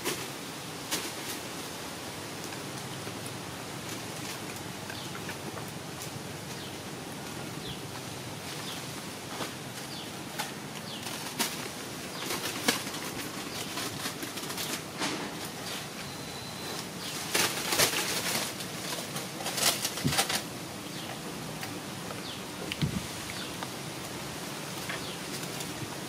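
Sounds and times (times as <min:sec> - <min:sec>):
steady hiss: 0:00.0 - 0:26.0
sharp clicks and rustles: 0:08.0 - 0:26.0.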